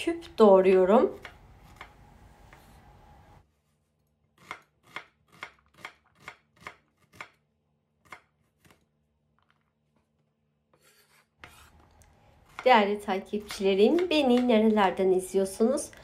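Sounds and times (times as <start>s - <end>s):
knife chopping on wooden board: 4.4s - 7.4s, 12.4s - 14.7s.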